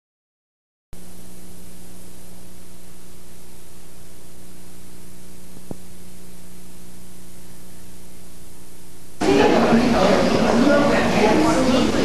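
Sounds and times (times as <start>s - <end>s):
low electrical hum: 1.0s - 12.0s
static hiss: 1.0s - 12.0s.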